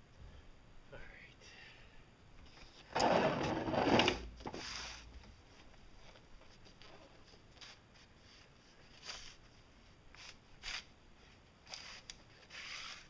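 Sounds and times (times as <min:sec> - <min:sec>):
pipe scraping on boat deck: 0:03.0 - 0:04.2.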